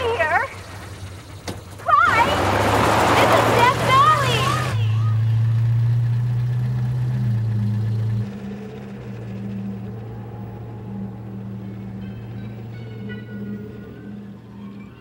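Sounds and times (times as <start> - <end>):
car engine humming: 0.0 - 15.0.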